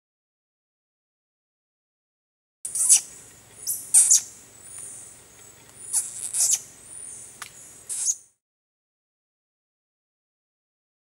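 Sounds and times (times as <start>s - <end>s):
tarsier shrill squeaks and whistles: 2.7s - 5.0s, 5.8s - 7.2s, 7.9s - 8.3s.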